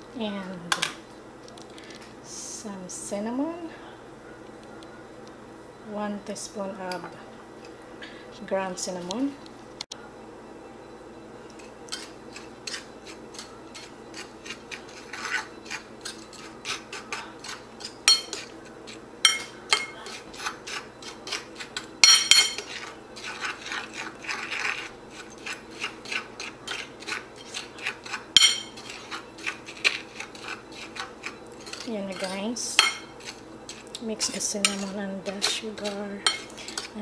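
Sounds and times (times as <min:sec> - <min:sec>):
spoon scraping on plate: 0:11.5 - 0:37.0
spoon clinking on ceramic plate: 0:17.4 - 0:18.5, 0:19.2 - 0:20.2, 0:22.0 - 0:22.7, 0:28.4 - 0:29.0.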